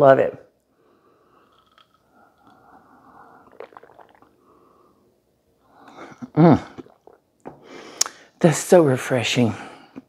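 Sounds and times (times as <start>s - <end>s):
woman swallowing: 3.3s - 4.4s, 5.8s - 8.2s.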